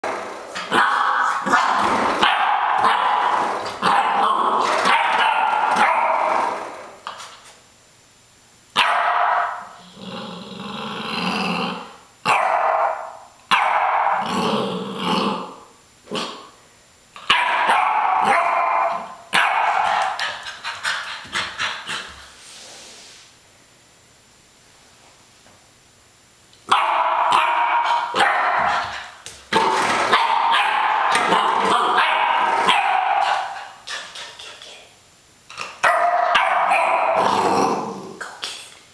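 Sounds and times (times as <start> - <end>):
dog barking: 0.7 - 6.3, 8.8 - 9.6, 12.3 - 14.2, 17.3 - 20.2, 26.7 - 28.8, 29.6 - 33.8, 35.8 - 37.3
dog growling low: 9.8 - 12.0, 14.2 - 16.5, 37.2 - 38.2.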